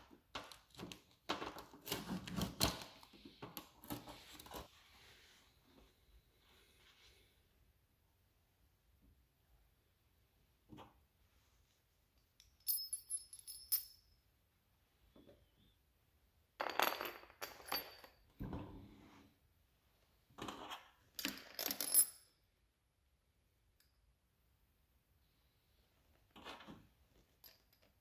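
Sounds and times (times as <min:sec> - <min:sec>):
metal tools clinking: 0:12.4 - 0:14.0.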